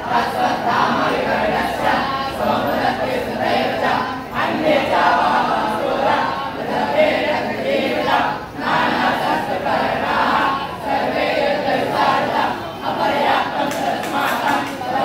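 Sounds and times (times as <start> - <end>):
group chanting: 0.0 - 15.0.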